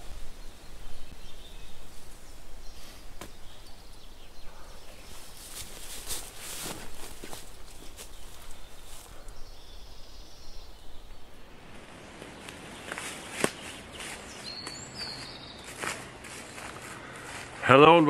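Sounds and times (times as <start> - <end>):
bird chirp: 0.0 - 16.1
footsteps on dry leaves: 5.0 - 9.4, 11.8 - 17.8.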